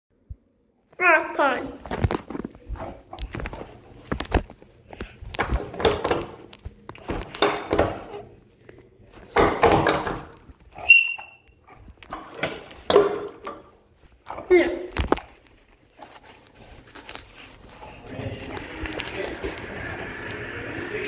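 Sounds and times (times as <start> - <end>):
whistle-like tone: 10.8 - 11.4.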